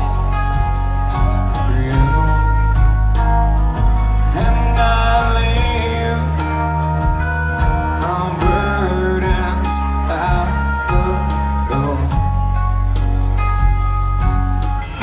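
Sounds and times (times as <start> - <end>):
rock band playing: 0.0 - 15.0
man singing: 1.2 - 12.3.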